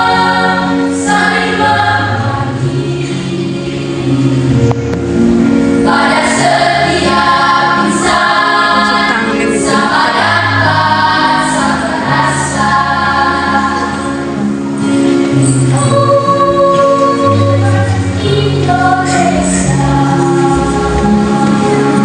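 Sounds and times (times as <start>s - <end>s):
choir singing in parts: 0.0s - 4.6s, 5.6s - 22.0s.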